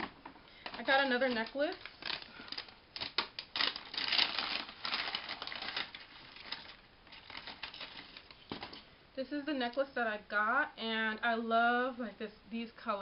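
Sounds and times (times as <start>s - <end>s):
rustling of bag and packaging: 0.6s - 8.9s.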